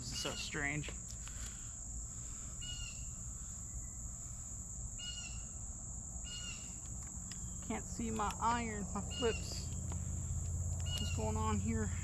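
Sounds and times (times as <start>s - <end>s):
insects droning: 0.0s - 12.0s
bird chirping call: 5.0s - 5.6s, 6.2s - 6.8s, 9.0s - 9.8s, 10.8s - 11.6s.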